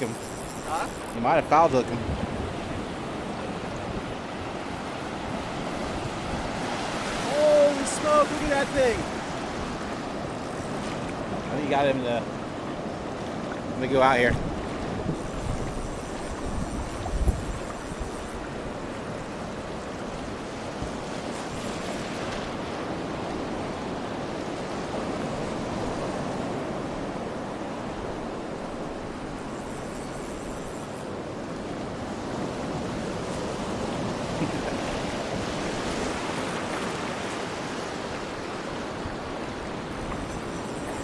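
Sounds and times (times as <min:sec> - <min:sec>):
surf washing over sandy beach: 0:00.0 - 0:41.0.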